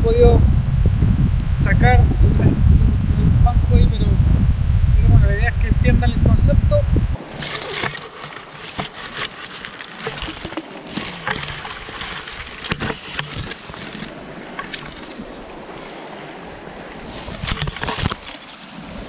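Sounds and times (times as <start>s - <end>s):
brush scraping against camera: 7.2s - 16.1s, 17.0s - 18.7s
river rushing: 7.2s - 19.0s.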